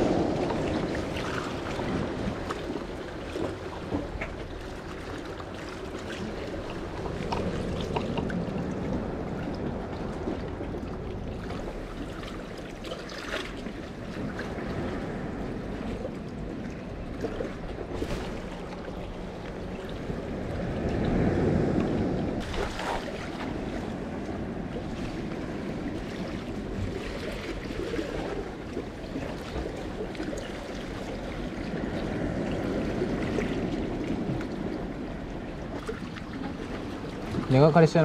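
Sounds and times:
wind on microphone: 0.0s - 3.1s, 13.5s - 37.6s
sea waves sloshing among concrete blocks: 0.0s - 38.0s.

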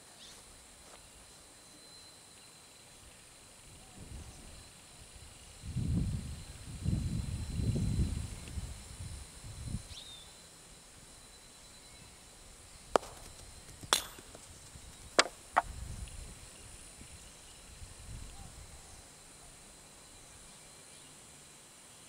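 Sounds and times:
high insect hum: 0.0s - 22.0s
sharp knocks: 13.0s - 14.5s, 15.2s - 15.7s.

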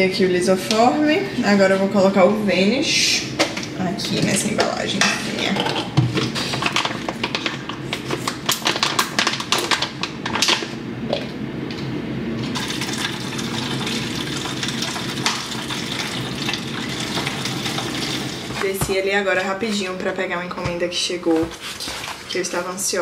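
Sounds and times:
liquid pouring into container: 12.5s - 18.7s.

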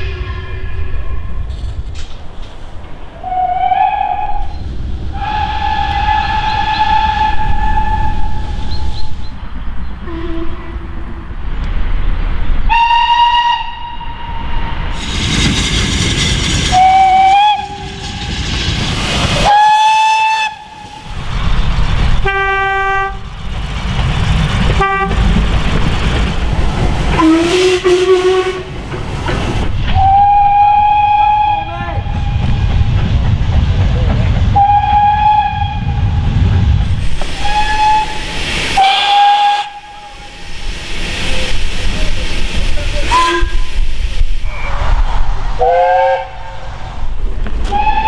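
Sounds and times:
rumble of passing trains: 0.0s - 48.0s
steam locomotive whistle blasts: 5.2s - 8.4s, 12.7s - 14.6s, 16.7s - 18.0s, 19.4s - 20.8s, 27.2s - 28.7s, 29.9s - 31.7s, 34.6s - 35.9s, 37.4s - 40.2s, 43.1s - 43.6s, 47.7s - 48.0s.

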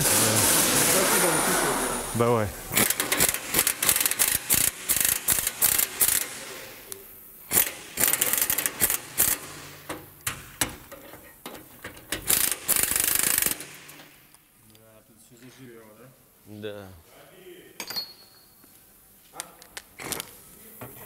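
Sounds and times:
ratchet wrench clicking: 2.7s - 6.4s, 7.5s - 9.5s, 12.2s - 14.1s.

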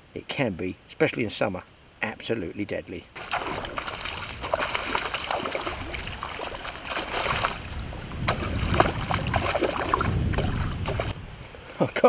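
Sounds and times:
fish splashing in water: 3.2s - 11.2s.

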